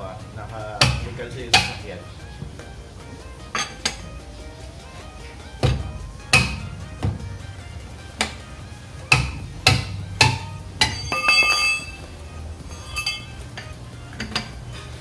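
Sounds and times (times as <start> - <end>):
hammer striking lug wrench: 0.8 - 1.8, 5.6 - 7.2, 9.0 - 12.0, 12.7 - 14.6.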